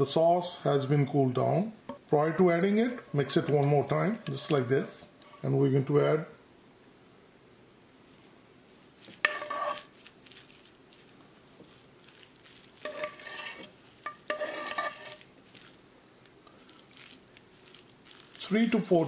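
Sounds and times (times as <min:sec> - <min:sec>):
soft stirring: 0:02.2 - 0:05.7, 0:08.1 - 0:19.0
metal spoon scraping dishes: 0:09.2 - 0:09.9, 0:12.8 - 0:15.2.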